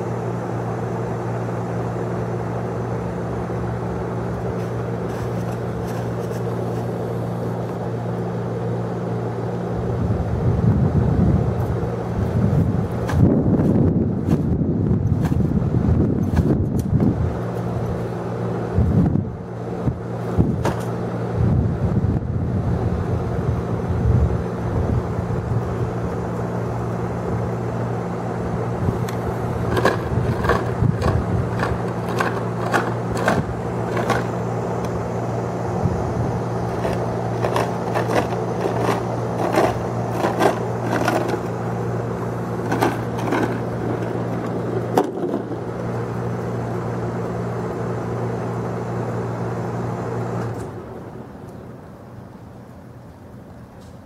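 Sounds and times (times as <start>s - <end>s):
low motor hum: 0.0s - 53.8s
sharp clicks and knocks: 29.0s - 35.0s, 42.6s - 45.6s.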